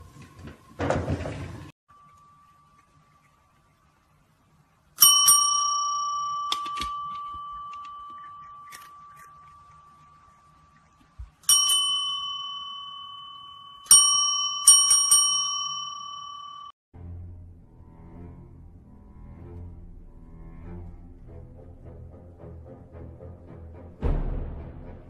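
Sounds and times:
desk bell dinging: 0:05.0 - 0:10.4, 0:11.4 - 0:16.7.

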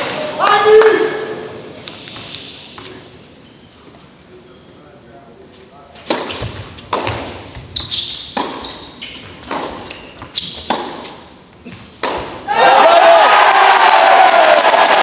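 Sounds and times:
tennis ball struck by racquets: 0:06.0 - 0:08.7, 0:09.3 - 0:11.2, 0:12.0 - 0:12.5
tennis ball bouncing on court: 0:06.0 - 0:11.2, 0:12.0 - 0:12.4.

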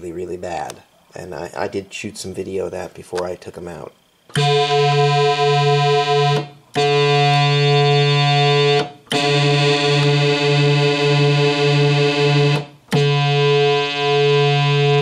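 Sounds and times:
synthesizer held note: 0:04.4 - 0:15.0.

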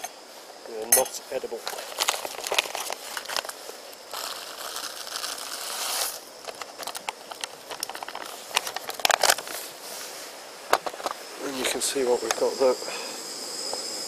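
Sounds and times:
foil pouch crinkling: 0:01.6 - 0:09.7.

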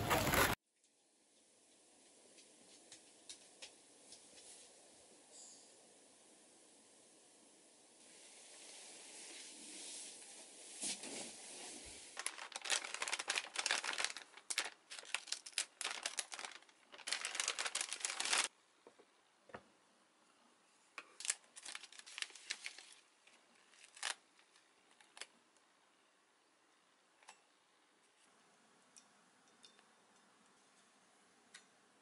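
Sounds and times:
bedding rustling: 0:00.0 - 0:00.6, 0:09.2 - 0:18.5
paper crinkling: 0:00.0 - 0:00.6, 0:12.2 - 0:18.5, 0:21.0 - 0:25.3.

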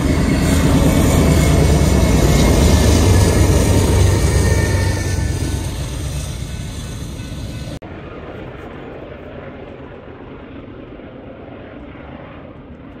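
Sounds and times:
diesel locomotive engine rumble: 0:00.0 - 0:08.1.

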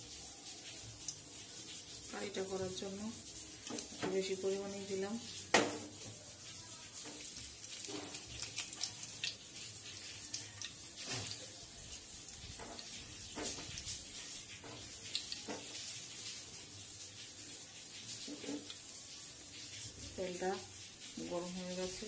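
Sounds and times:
hot oil sizzling: 0:00.0 - 0:22.0
oil crackling: 0:00.1 - 0:22.0
spatula scraping and tapping pan: 0:12.5 - 0:15.9.

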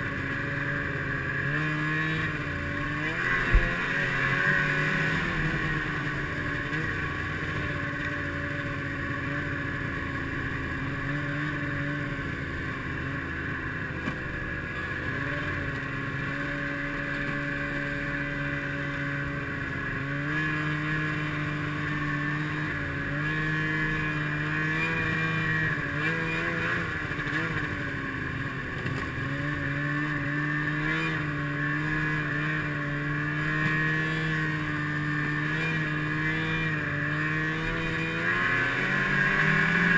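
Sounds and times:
snowmobile engine running: 0:00.0 - 0:39.9.

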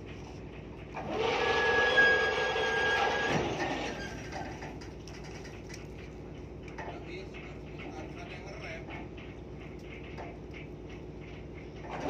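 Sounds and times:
low machinery hum: 0:00.0 - 0:12.0
winch whining and squealing: 0:01.0 - 0:04.7.

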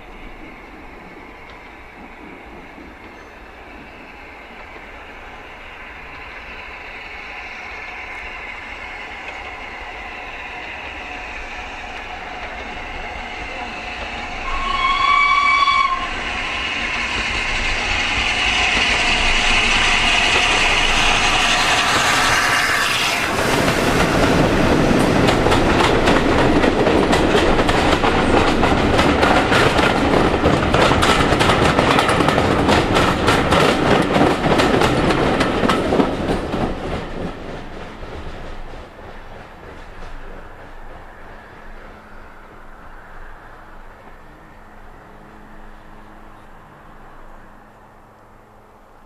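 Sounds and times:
locomotive running noise: 0:00.0 - 0:42.7
coaches rattling over rail joints: 0:00.1 - 0:42.8
steam locomotive whistle: 0:13.6 - 0:24.1.

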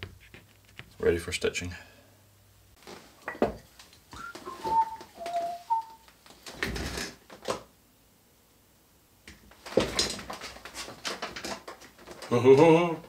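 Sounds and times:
person whistling a tune: 0:04.2 - 0:06.1.

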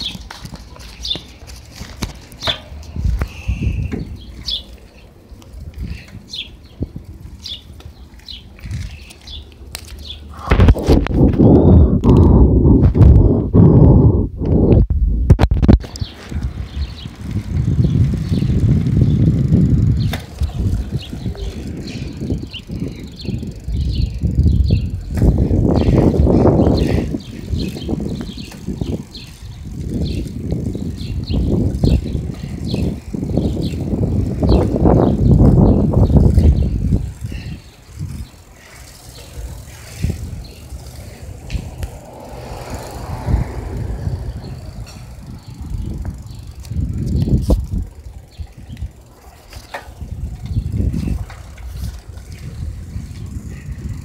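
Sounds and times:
birds chirping: 0:00.0 - 0:10.5, 0:15.8 - 0:54.0
bicycle tyres rolling on pavement: 0:00.0 - 0:14.7, 0:15.5 - 0:54.0
wind buffeting microphone: 0:00.0 - 0:54.0.

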